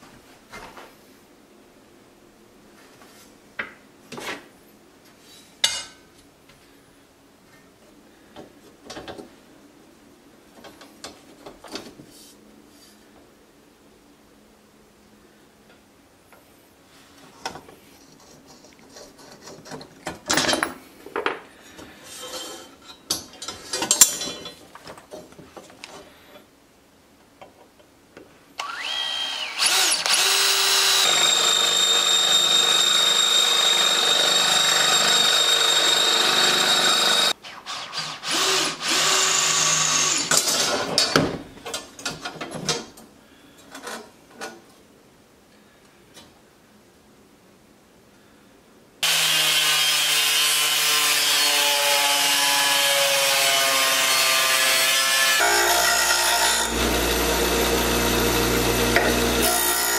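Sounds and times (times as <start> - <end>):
cordless drill whining: 28.6 - 40.3, 56.4 - 59.9.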